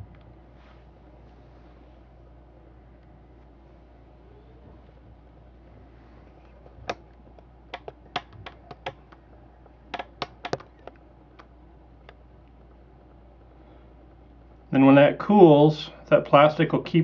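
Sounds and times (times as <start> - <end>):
clicks and taps on can: 6.5 - 12.6.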